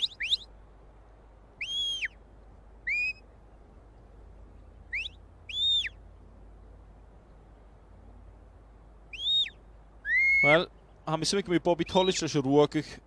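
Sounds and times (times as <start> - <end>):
shepherd's whistle notes: 0.0 - 0.5, 1.6 - 2.2, 2.8 - 3.2, 4.9 - 6.0, 9.1 - 10.6.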